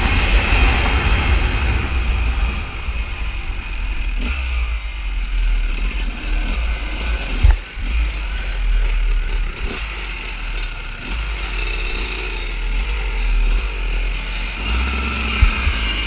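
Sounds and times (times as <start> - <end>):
wind buffeting microphone: 0.0 - 5.3
dirt bike engine running: 0.0 - 16.0.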